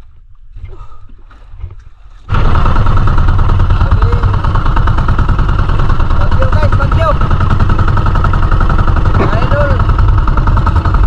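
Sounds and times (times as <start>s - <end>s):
boat engine running: 2.3s - 11.0s.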